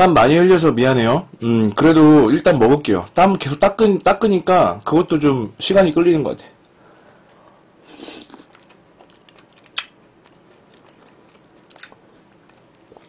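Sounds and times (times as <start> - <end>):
breathy swell: 6.8 - 8.0
person chewing food: 7.3 - 13.0.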